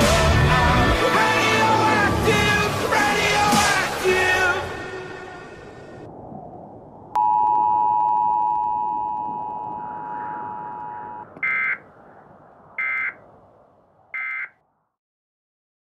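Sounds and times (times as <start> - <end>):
short electronic beeps: 7.2 - 11.8, 12.8 - 13.2, 14.2 - 14.5
steady electronic tone: 7.2 - 11.8.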